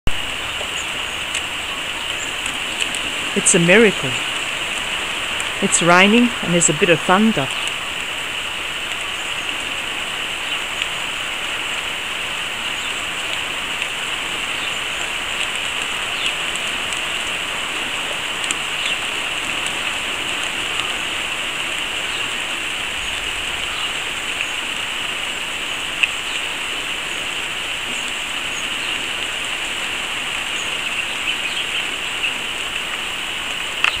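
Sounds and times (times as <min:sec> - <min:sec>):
raindrop ticks: 0:00.1 - 0:34.0
steady rain hiss: 0:00.1 - 0:34.0.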